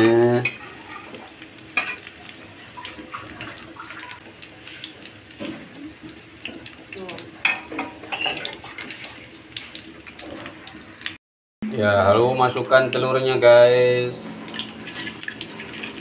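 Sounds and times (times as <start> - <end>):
onions sizzling in hot oil: 0.0 - 11.2, 12.8 - 16.0
spatula scraping and knocking wok: 7.4 - 10.4, 14.4 - 16.0.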